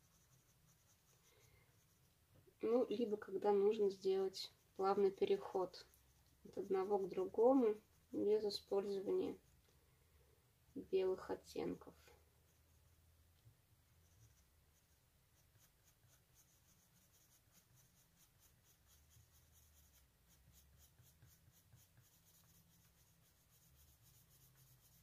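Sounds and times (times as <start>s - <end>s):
pencil scratching on paper: 0.0s - 9.6s, 11.1s - 13.1s, 13.9s - 25.0s.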